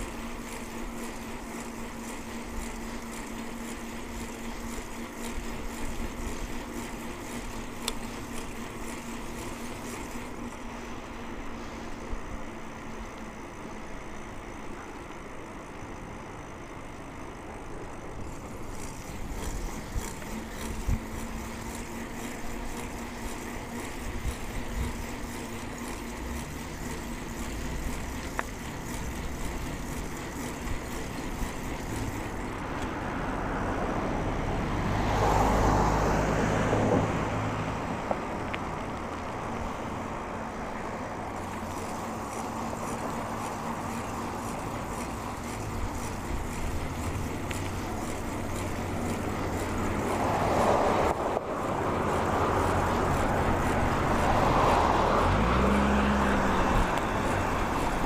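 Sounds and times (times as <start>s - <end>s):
road noise hiss: 0.0s - 58.0s
vehicles passing: 18.2s - 58.0s.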